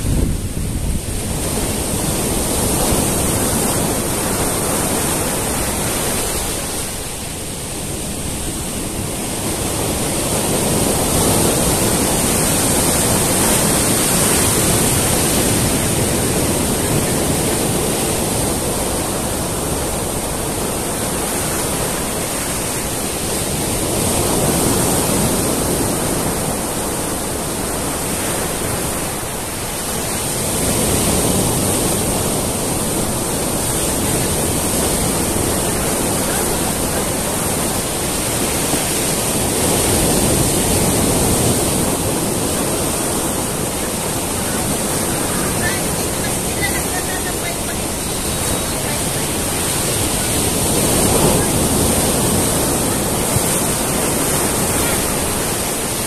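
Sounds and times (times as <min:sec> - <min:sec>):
ocean surf on rocks and beach: 0:00.0 - 0:56.0.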